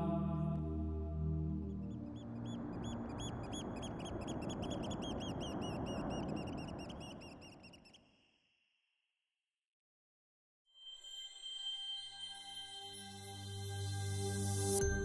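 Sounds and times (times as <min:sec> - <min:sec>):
soft rushing background: 0:01.7 - 0:08.2
small birds chirping: 0:01.7 - 0:08.3.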